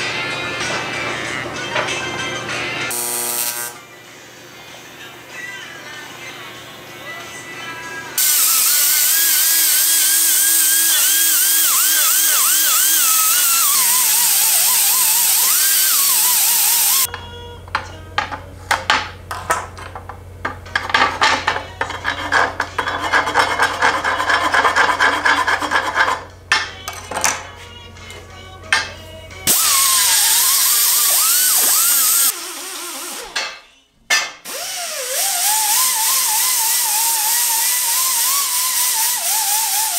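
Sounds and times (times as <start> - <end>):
air grinder whining: 2.9 - 3.8, 8.2 - 17.8, 20.7 - 27.1, 28.7 - 33.6, 34.4 - 39.9
hand tool scraping metal: 20.7 - 27.3, 31.4 - 34.5.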